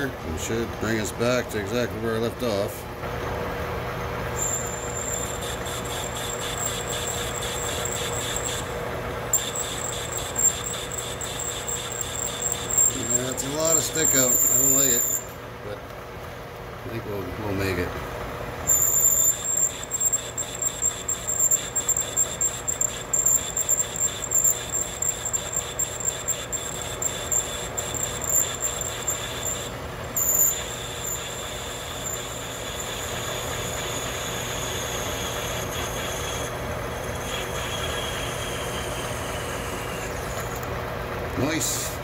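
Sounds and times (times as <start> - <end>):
lathe running hum: 0.0 - 42.0
lathe tool cutting with ringing tone: 4.3 - 15.4, 18.6 - 40.7.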